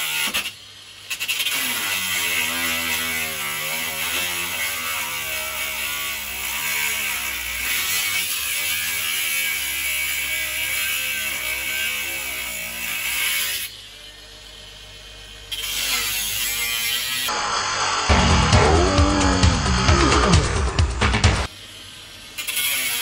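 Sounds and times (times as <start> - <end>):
angle grinder cutting sheet metal: 0.0 - 23.0.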